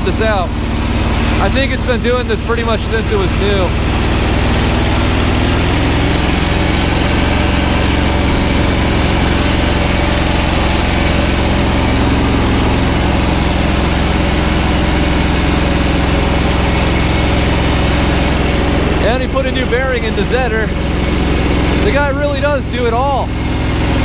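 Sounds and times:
small diesel tractor engine running: 0:00.0 - 0:24.0.

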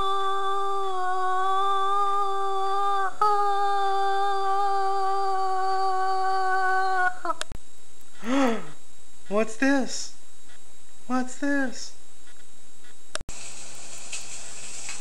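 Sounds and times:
person howling: 0:00.0 - 0:07.4.

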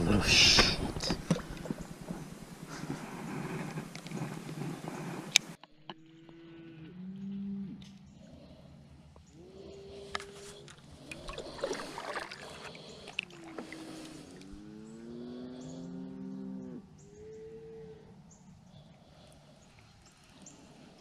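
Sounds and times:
cattle mooing: 0:13.4 - 0:18.1.

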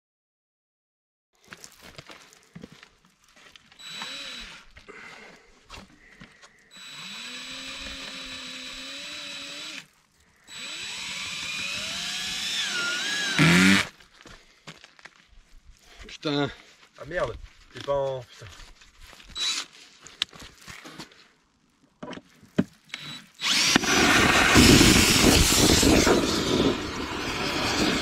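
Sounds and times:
cordless drill whine: 0:03.8 - 0:04.8, 0:06.6 - 0:09.9, 0:10.5 - 0:13.9, 0:19.3 - 0:19.7, 0:22.9 - 0:28.0.

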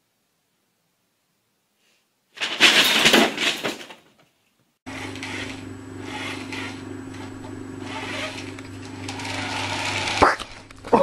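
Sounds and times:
low hum with hiss: 0:04.9 - 0:11.0.

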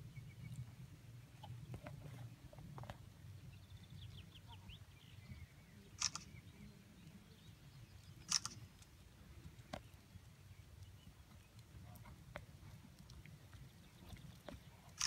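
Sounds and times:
bird singing: 0:03.3 - 0:08.7.

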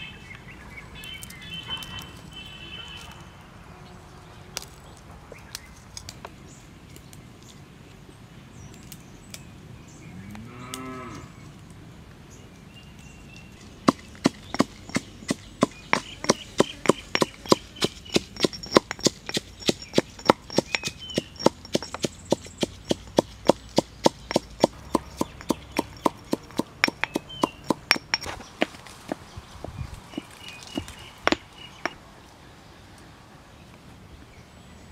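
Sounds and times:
cow mooing: 0:10.4 - 0:11.3
pestle pounding in stone mortar: 0:13.8 - 0:32.0.

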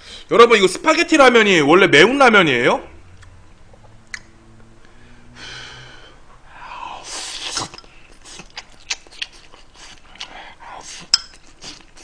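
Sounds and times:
man slurping noodles: 0:06.9 - 0:08.6.

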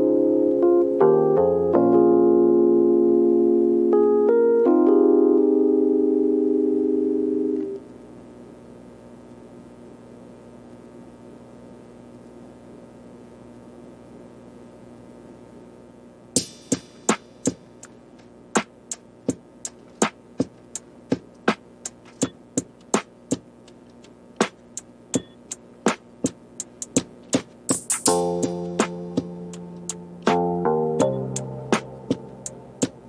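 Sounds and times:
faint steady hum: 0:00.0 - 0:33.0
music with clicky percussion beat: 0:16.4 - 0:33.0.

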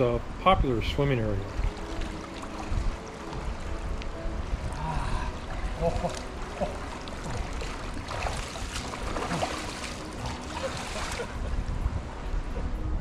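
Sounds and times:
river water running: 0:00.0 - 0:13.0
person wading splashing: 0:05.2 - 0:11.4.

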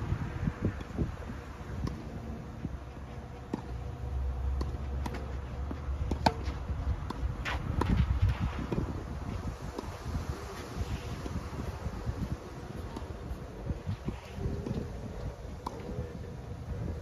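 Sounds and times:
wind on microphone: 0:00.0 - 0:04.1, 0:05.3 - 0:17.0
rackets hitting tennis ball: 0:01.6 - 0:10.6, 0:12.4 - 0:16.5
ball bouncing on court: 0:03.4 - 0:08.1.

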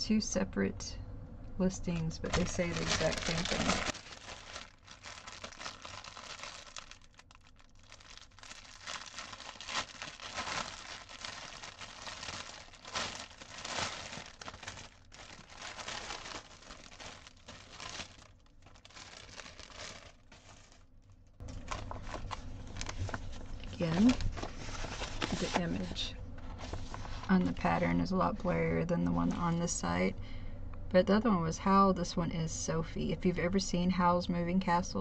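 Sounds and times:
plastic bag crinkling: 0:02.2 - 0:27.3.

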